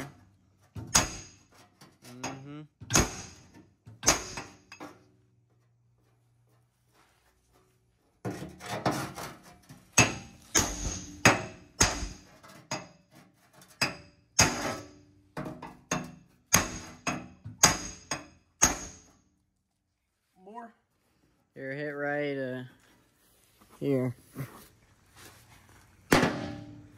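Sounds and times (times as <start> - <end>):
hammer striking steel: 0.9 - 1.4, 2.2 - 4.8, 10.0 - 12.9, 13.8 - 15.0, 15.8 - 19.1.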